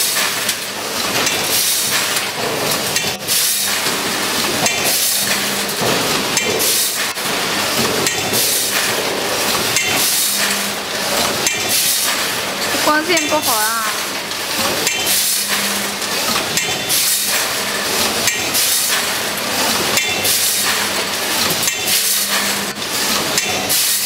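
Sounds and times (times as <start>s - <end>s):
packing machine hissing: 0.0s - 24.0s.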